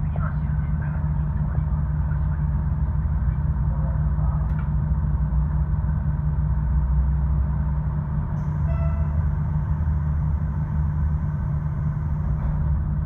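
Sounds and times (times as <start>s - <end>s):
diesel railcar engine rumble: 0.0s - 13.0s.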